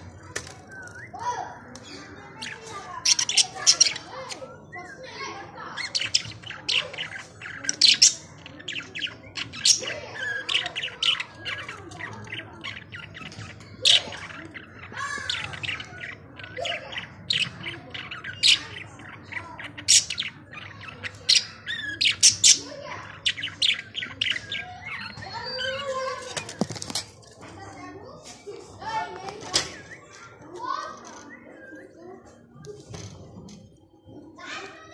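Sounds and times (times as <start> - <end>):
budgerigars chirping: 2.0 - 4.4, 5.6 - 26.2.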